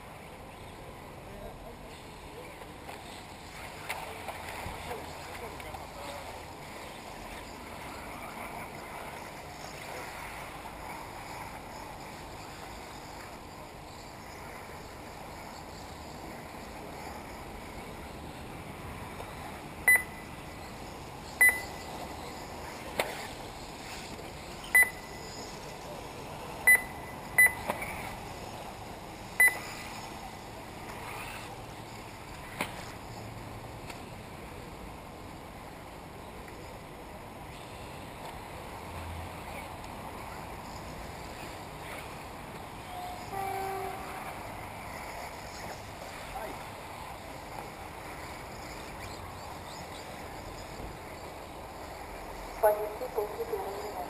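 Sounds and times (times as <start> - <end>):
steady background hiss: 0.0 - 54.0
short sharp electronic beeps: 19.9 - 20.3, 21.4 - 21.9, 24.6 - 25.4, 26.6 - 27.7, 29.4 - 29.8.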